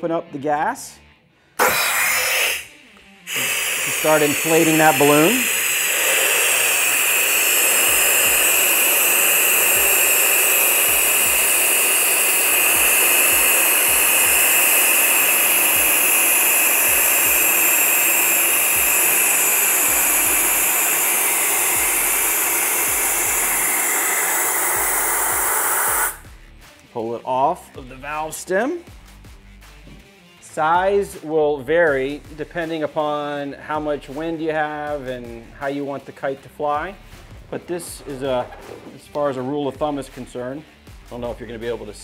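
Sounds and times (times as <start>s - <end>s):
gas hissing from tank valve: 1.6s - 26.4s, 36.8s - 40.4s.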